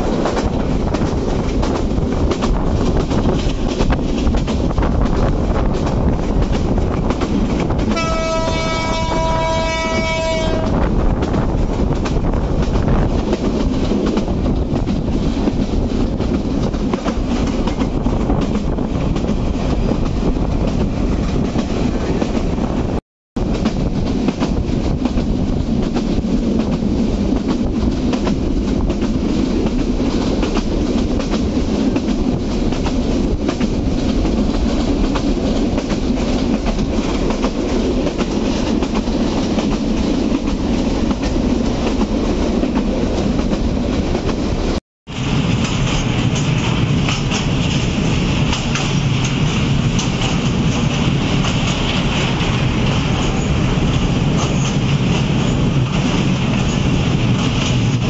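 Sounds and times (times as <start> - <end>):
train wheels rumbling on rails: 0.0 - 58.0
train horn long tone: 7.9 - 10.9.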